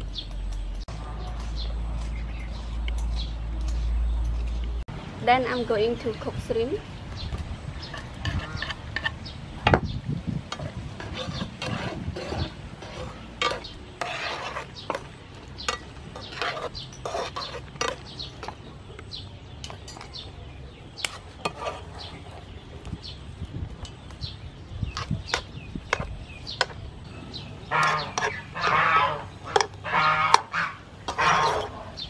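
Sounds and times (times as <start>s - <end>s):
metal tongs scraping a pan: 7.8s - 9.3s, 10.5s - 18.5s, 21.0s - 22.4s, 27.3s - 32.0s.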